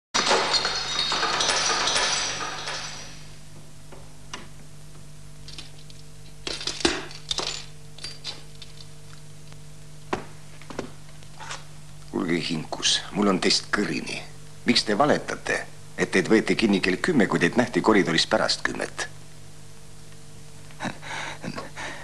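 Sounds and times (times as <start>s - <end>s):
glass shattering: 0.2s - 3.3s
low steady hum: 0.2s - 22.0s.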